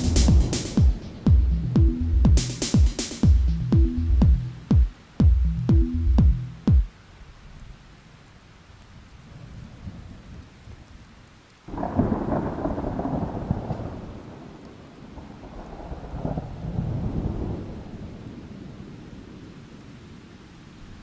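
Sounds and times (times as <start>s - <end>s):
loud thunder clap: 0.0s - 3.3s, 11.7s - 14.6s, 15.2s - 17.9s
thunder rumbling: 0.0s - 6.4s, 11.7s - 19.4s.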